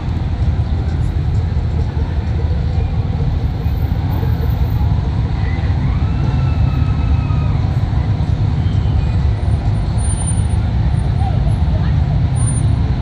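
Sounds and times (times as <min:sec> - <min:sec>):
car engines rumbling: 0:00.0 - 0:13.0.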